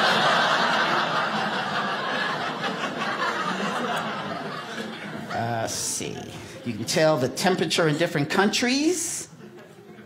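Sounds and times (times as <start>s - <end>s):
audience laughing: 0.0s - 5.8s.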